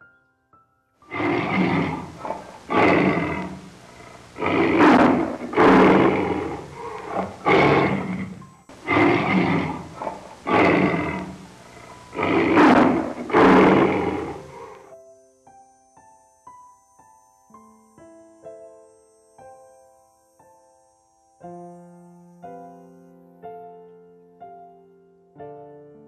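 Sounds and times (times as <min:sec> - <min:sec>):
tiger roaring and growling: 0:01.1 - 0:14.9.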